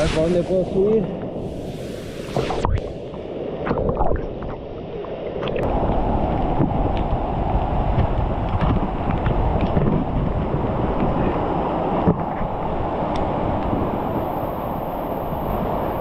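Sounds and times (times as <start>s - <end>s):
water splashes: 0.0s - 10.4s.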